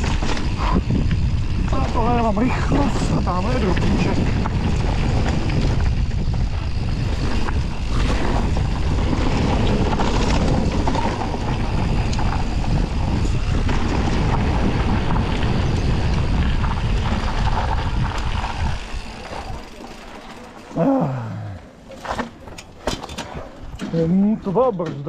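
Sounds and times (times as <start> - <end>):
wind buffeting microphone: 0.0 - 19.8
tyres rumbling on dirt: 0.0 - 22.5
bike rattling: 0.0 - 25.0.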